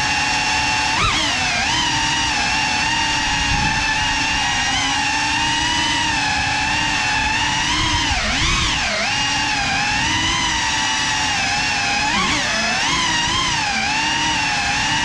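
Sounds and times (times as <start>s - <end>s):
quadcopter propellers whining: 0.0s - 15.0s.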